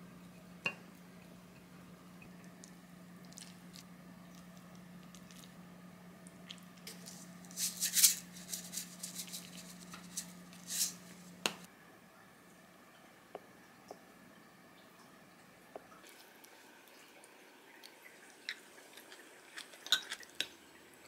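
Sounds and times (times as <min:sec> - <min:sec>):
low steady hum: 0:00.0 - 0:21.0
spoon scooping and scraping: 0:06.8 - 0:11.3, 0:18.5 - 0:20.5.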